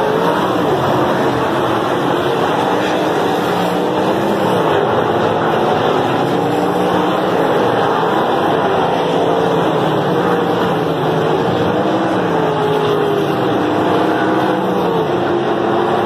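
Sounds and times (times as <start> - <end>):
racing car engines: 0.0 - 16.0.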